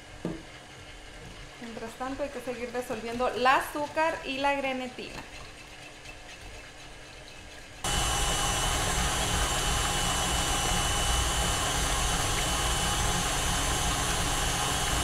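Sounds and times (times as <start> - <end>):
stand mixer motor whine: 7.8 - 15.0.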